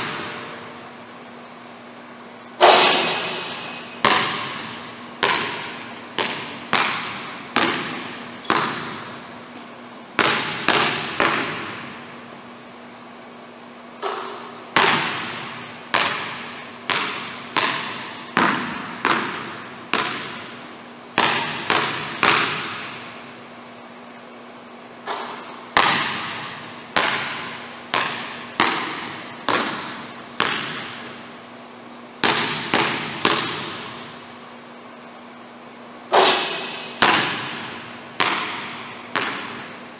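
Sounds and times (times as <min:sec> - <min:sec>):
basketball bouncing on gym floor: 0:00.0 - 0:00.7, 0:02.6 - 0:12.2, 0:14.0 - 0:23.2, 0:25.0 - 0:31.4, 0:32.2 - 0:34.2, 0:36.1 - 0:39.9
faint steady hum: 0:00.0 - 0:39.9.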